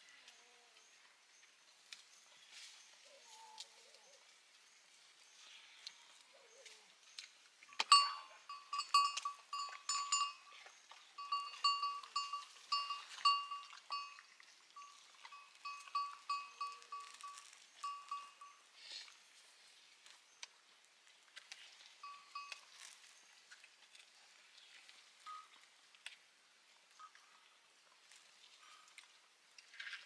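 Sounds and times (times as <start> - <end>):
livestock neck bell clanging: 7.7 - 18.6, 22.0 - 22.7, 25.3 - 25.5.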